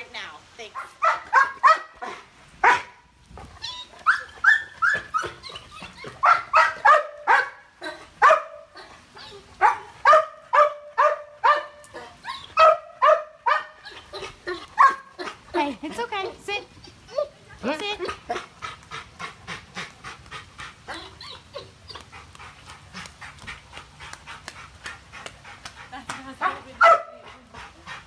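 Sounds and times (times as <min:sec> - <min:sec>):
dog barking and yelping: 0:00.8 - 0:03.0, 0:03.6 - 0:15.4, 0:26.4 - 0:27.2.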